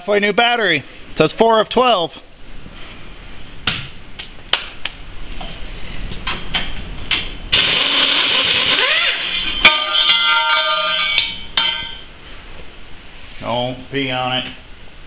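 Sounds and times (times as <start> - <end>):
air tool running: 7.5 - 9.4
metal clanging on concrete: 9.2 - 12.1.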